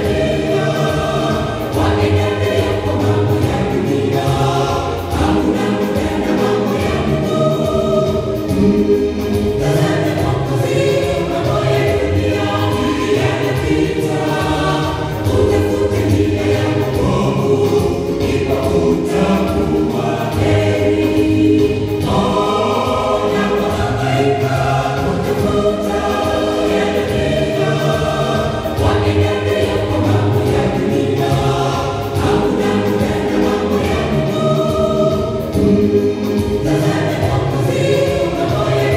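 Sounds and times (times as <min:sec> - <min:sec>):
mixed choir singing gospel: 0:00.0 - 0:38.9.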